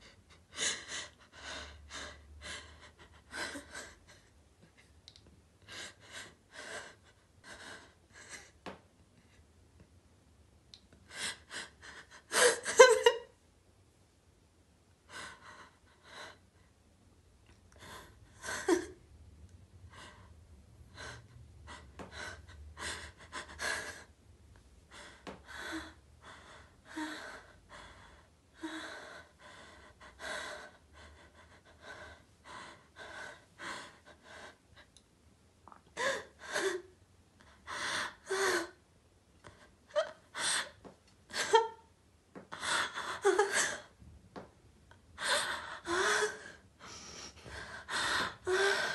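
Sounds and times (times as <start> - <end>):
woman breathing heavily and gasping: 0.0 - 4.8, 5.6 - 9.4, 19.9 - 24.2, 24.9 - 35.0, 36.0 - 38.8, 39.4 - 41.7, 42.4 - 44.0, 45.1 - 48.9.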